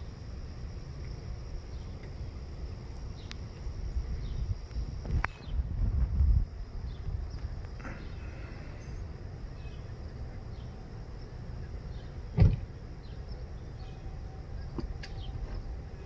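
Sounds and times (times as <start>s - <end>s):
low outdoor rumble: 0.0s - 16.0s
thump: 12.4s - 12.6s.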